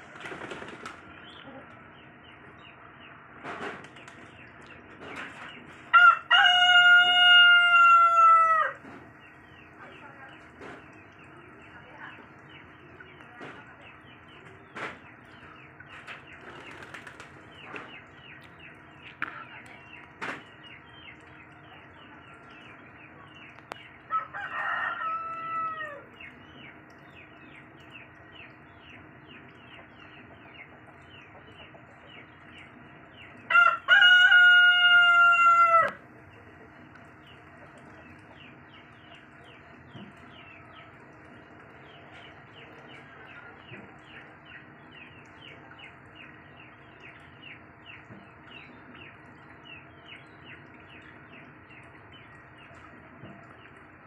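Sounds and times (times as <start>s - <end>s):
rooster crowing: 5.9s - 8.8s, 24.1s - 26.1s, 33.5s - 36.0s.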